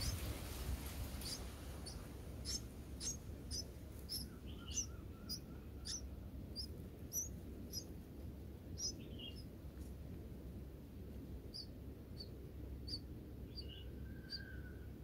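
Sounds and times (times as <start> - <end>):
lower bird notes: 0.0 - 9.6
nestlings begging chirps: 0.0 - 9.6, 11.3 - 15.0
low steady background rumble: 0.0 - 15.0.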